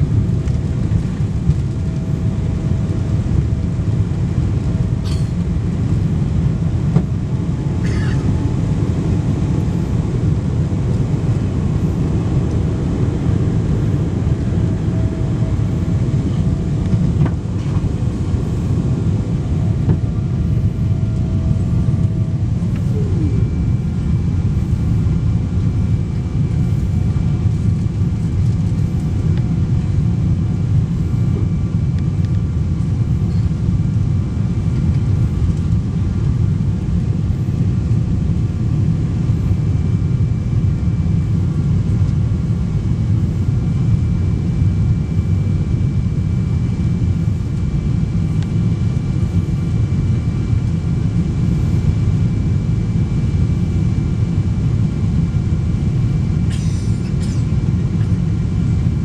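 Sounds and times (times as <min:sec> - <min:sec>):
aircraft cabin engine roar: 0:00.0 - 0:59.0
short falling whine: 0:14.1 - 0:26.4.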